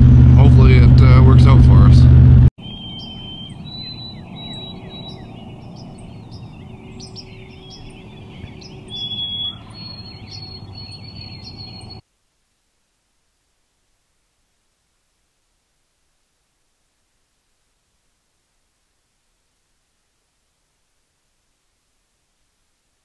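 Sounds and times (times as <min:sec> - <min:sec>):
steady low rumble: 0:00.0 - 0:10.7
songbirds chirping and whistling: 0:02.6 - 0:12.0
turkey gobbling: 0:06.3 - 0:10.8.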